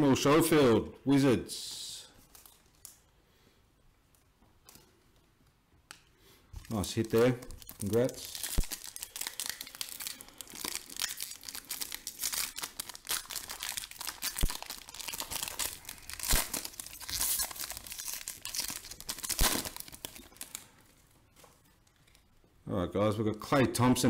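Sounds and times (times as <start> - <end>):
foil wrapper tearing and crinkling: 6.6 - 20.8.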